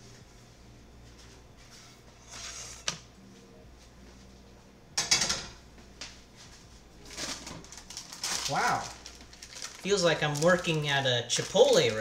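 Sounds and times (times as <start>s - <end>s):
kitchen scrape or clatter: 2.2s - 3.0s.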